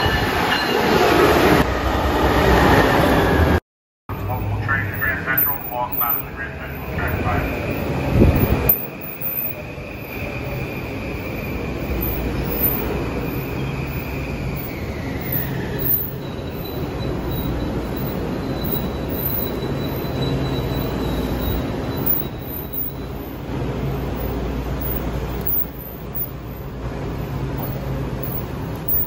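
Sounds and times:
train wheels rumbling on rails: 0.0s - 29.0s
thin high squeal: 8.7s - 23.2s.

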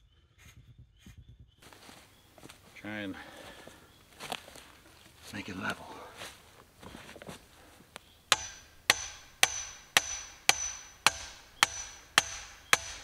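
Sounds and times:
sledgehammer striking metal pipe: 8.3s - 13.0s.

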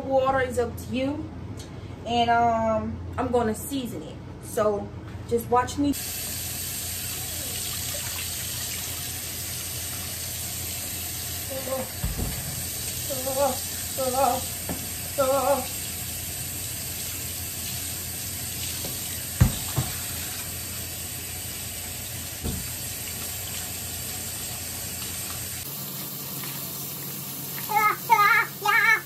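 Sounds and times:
tap water running into sink: 6.0s - 29.0s.

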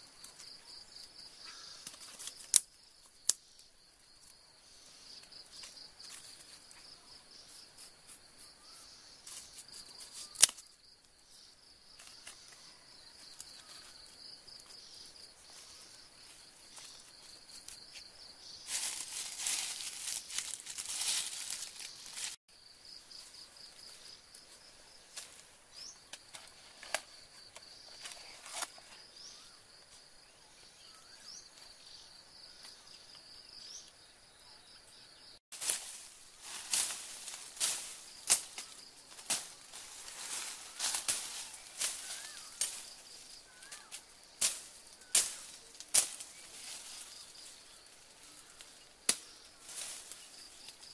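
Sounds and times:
rustling leaf litter: 12.0s - 22.4s, 35.5s - 48.8s
insect trilling: 36.5s - 50.9s.

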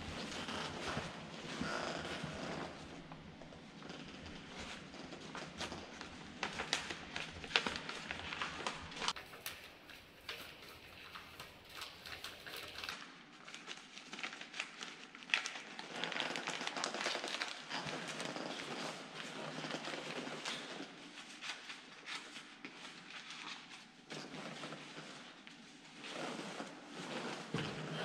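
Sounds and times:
paper rustling and crinkling: 3.9s - 28.0s.

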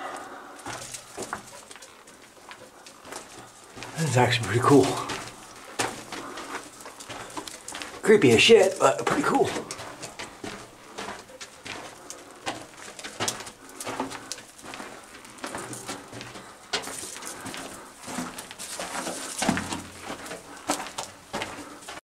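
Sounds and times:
footsteps crunching on gravel: 0.1s - 22.0s.

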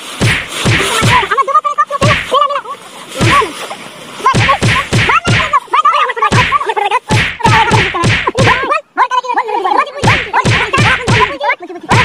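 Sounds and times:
slaps and whacks of fistfight: 0.2s - 1.3s, 2.0s - 2.4s, 3.2s - 3.4s, 4.4s - 5.6s, 6.3s - 8.6s, 10.0s - 12.0s.

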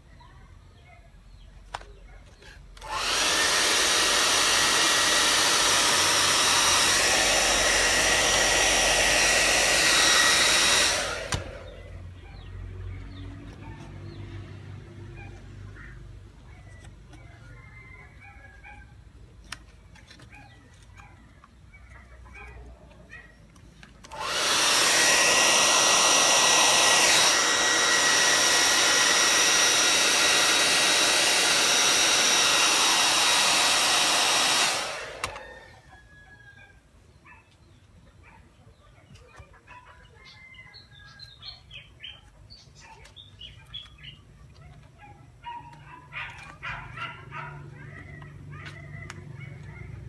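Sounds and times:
hair dryer blowing: 2.8s - 12.0s, 24.0s - 35.9s.

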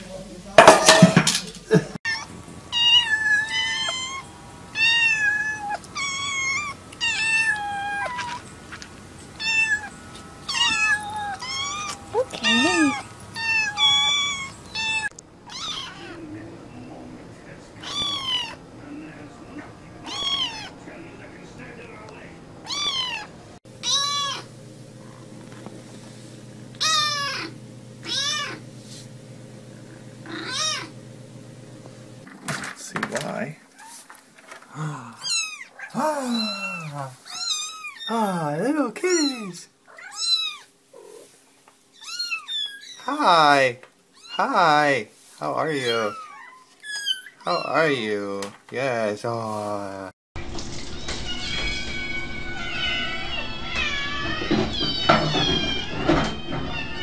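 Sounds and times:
kittens meowing: 2.0s - 8.5s, 9.3s - 16.3s, 17.8s - 18.6s, 20.0s - 20.8s, 22.6s - 24.5s, 26.8s - 28.6s, 30.2s - 31.0s, 34.8s - 38.2s, 39.0s - 41.3s, 41.9s - 43.5s, 44.1s - 44.8s, 45.6s - 48.1s, 51.3s - 57.0s.

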